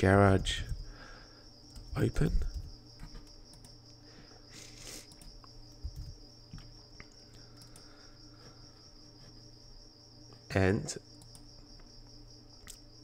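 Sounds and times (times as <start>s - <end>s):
low hum: 0.0s - 11.9s.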